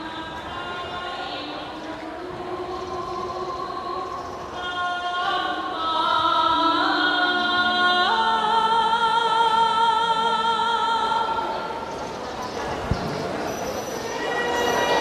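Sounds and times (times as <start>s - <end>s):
voices singing held notes: 13.7s - 15.0s.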